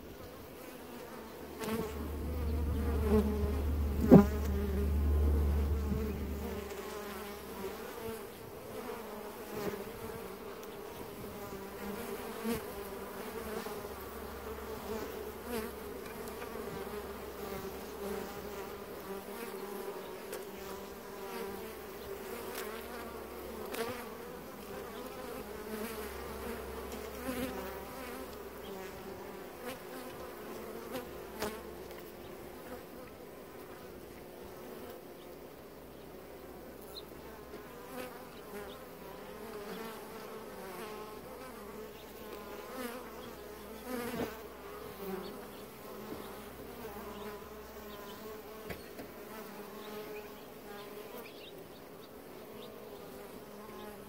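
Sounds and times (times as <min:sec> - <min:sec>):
honeybees buzzing: 0:00.0 - 0:54.0
low rumble: 0:01.8 - 0:07.0.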